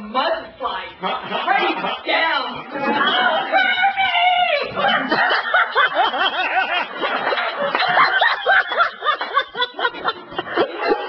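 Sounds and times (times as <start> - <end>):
audience laughter: 1.0 - 3.6, 4.7 - 11.0.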